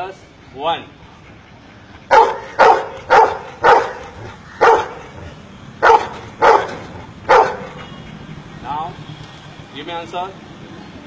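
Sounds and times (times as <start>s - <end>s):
dog barking: 2.1s - 7.9s.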